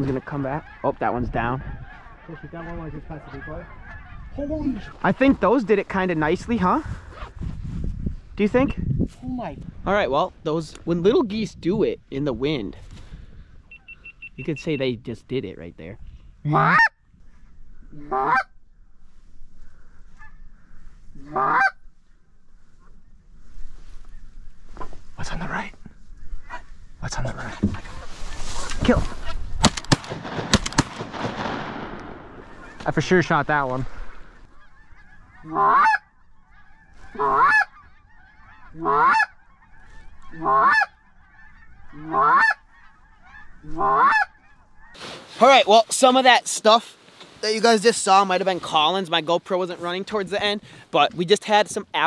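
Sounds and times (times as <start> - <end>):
geese chattering: 0.0 - 6.8, 13.7 - 15.0, 16.4 - 17.0, 17.7 - 18.8, 19.6 - 21.9, 32.3 - 46.7
goose call honks: 16.4 - 17.0, 17.9 - 18.6, 21.1 - 21.8, 34.4 - 45.0.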